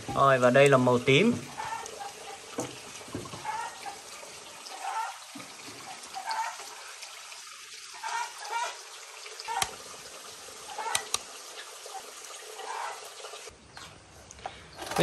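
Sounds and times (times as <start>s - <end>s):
water trickling: 0.0s - 13.5s.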